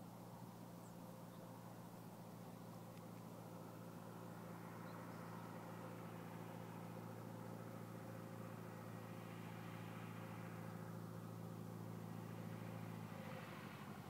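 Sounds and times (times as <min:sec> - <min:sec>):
light aircraft engine drone: 0:00.0 - 0:14.0.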